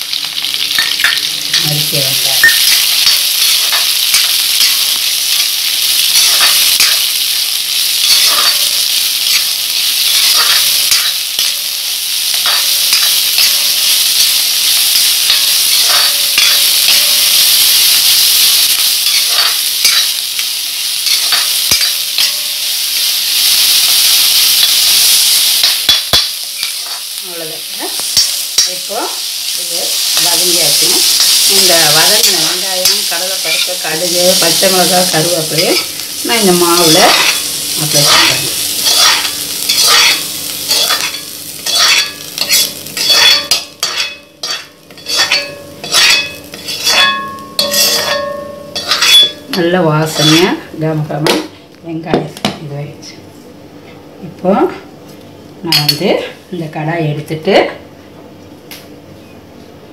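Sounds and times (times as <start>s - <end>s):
onions sizzling in hot oil: 0.0s - 51.6s
spoon scraping pan: 36.8s - 50.6s.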